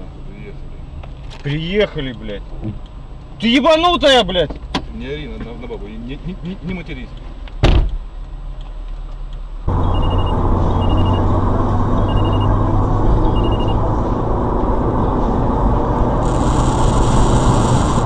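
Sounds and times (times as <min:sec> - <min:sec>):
vehicle engine and road noise: 0:00.0 - 0:18.0
short high electronic beeps: 0:09.8 - 0:11.3, 0:12.0 - 0:12.6, 0:13.2 - 0:13.8
loud hiss: 0:16.2 - 0:18.0.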